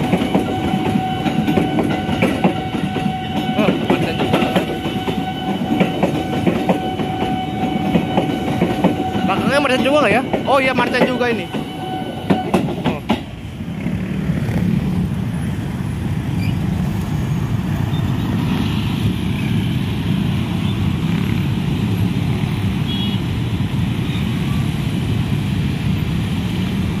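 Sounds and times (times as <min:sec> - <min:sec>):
motorcycle and car traffic: 0:12.5 - 0:27.0.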